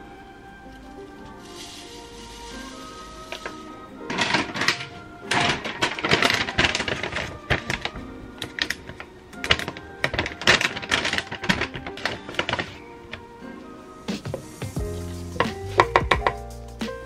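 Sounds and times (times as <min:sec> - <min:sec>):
background music: 0:00.0 - 0:17.0
plastic pouches crinkling: 0:00.7 - 0:13.4.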